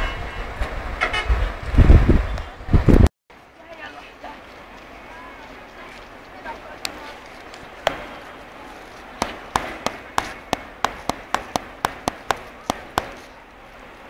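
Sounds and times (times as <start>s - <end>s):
sharp taps: 7.8s - 8.3s, 9.2s - 13.4s.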